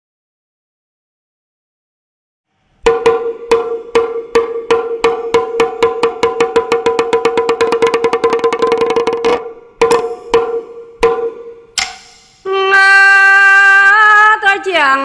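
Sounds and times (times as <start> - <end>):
small drum struck with sticks: 2.8 - 12.5.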